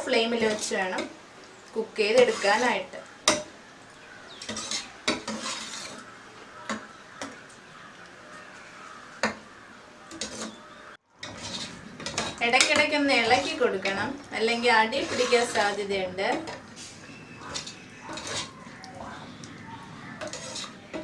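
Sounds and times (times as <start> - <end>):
ladle scraping a metal pot: 2.0 - 3.5, 4.4 - 6.8, 10.1 - 21.0.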